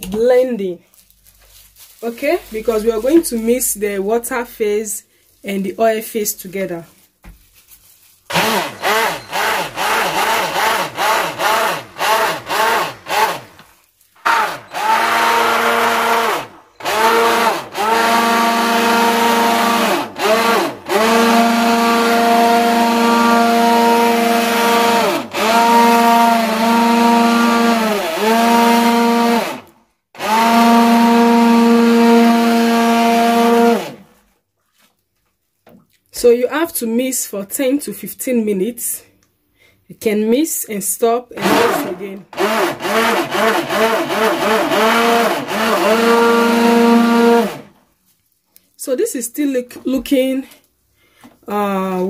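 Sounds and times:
immersion blender whining: 0:08.3 - 0:34.1, 0:41.4 - 0:47.8.

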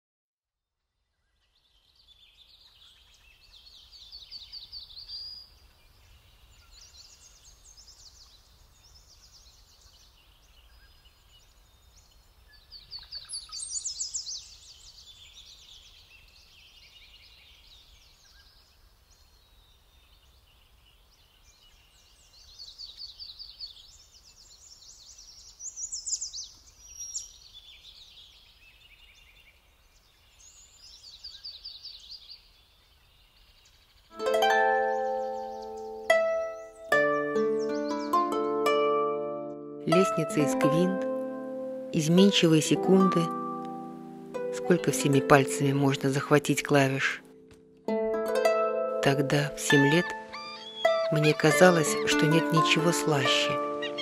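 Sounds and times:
songbirds trilling: 0:01.3 - 0:38.8, 0:48.4 - 0:54.0
faint background hiss: 0:01.3 - 0:54.0.

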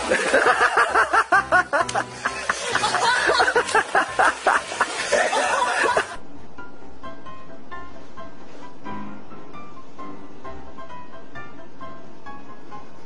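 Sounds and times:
person laughing hard: 0:00.0 - 0:06.2
background music: 0:00.0 - 0:13.0.

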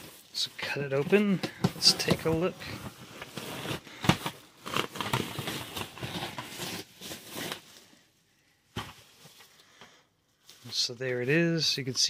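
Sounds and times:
bubble wrap crinkling on cardboard: 0:00.0 - 0:08.1.

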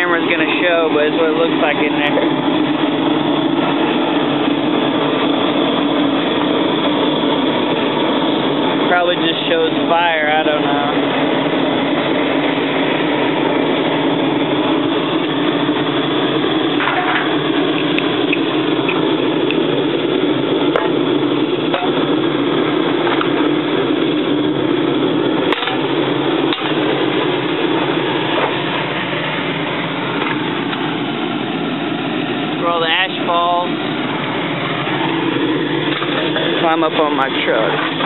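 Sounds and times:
forced-draft fire rushing: 0:00.0 - 0:38.0
faint fire pops: 0:16.8 - 0:19.8, 0:20.6 - 0:22.1, 0:22.8 - 0:23.7.

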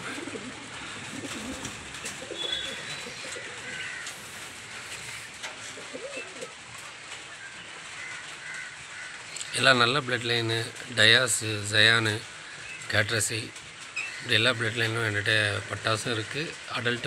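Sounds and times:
pigeons cooing: 0:00.0 - 0:09.4.

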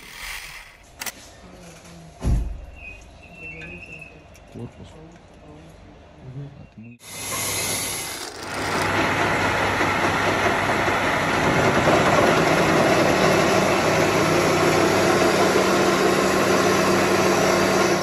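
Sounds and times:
metal lathe cutting: 0:07.1 - 0:18.0.

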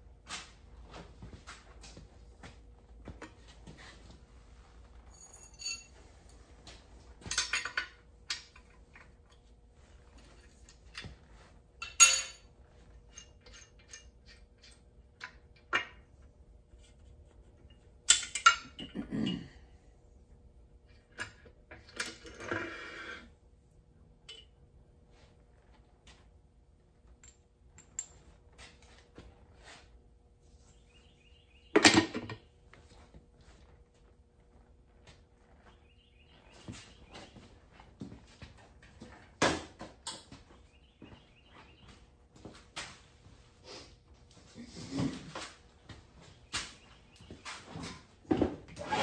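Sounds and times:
steel parts clinking and knocking: 0:05.1 - 0:06.0, 0:07.2 - 0:09.2, 0:11.8 - 0:12.5, 0:13.1 - 0:16.1, 0:17.6 - 0:19.4.

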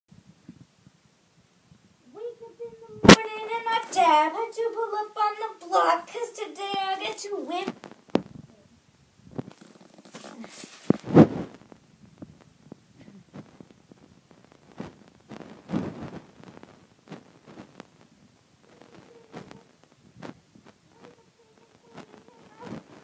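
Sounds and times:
fabric rustling on rug: 0:09.3 - 0:23.0.

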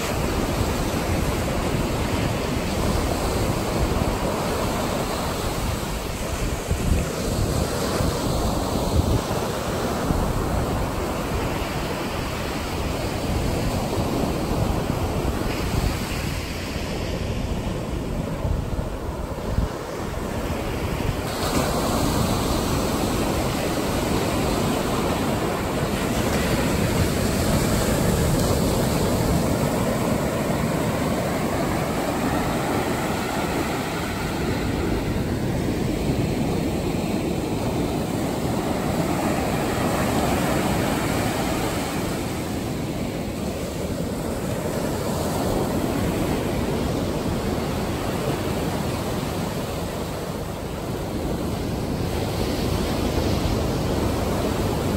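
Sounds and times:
surf washing over sand: 0:00.0 - 0:54.9.

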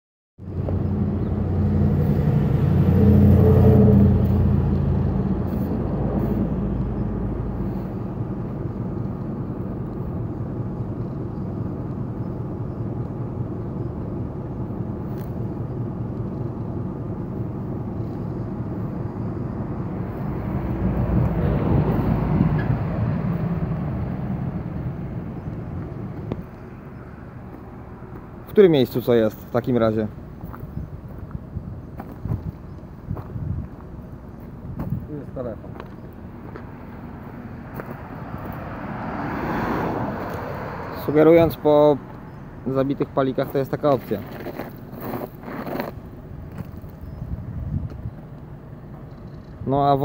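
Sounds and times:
vehicle engine running: 0:00.4 - 0:38.8.

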